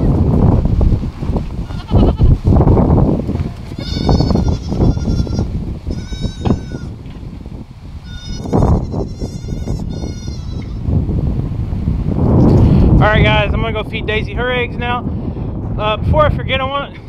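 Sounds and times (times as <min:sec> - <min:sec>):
low gusty noise: 0:00.0 - 0:17.0
goats bleating: 0:01.6 - 0:02.4, 0:03.7 - 0:07.0, 0:08.0 - 0:10.8.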